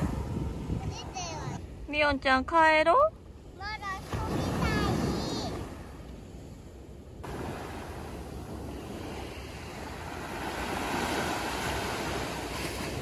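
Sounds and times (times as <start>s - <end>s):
waves washing up a beach: 0.0s - 1.8s, 3.5s - 13.0s.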